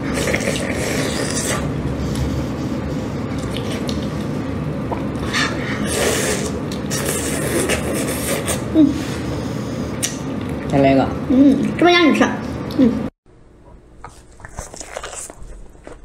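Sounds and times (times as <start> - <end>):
wet slurping mouth sounds: 0.0 - 2.3, 5.0 - 9.1.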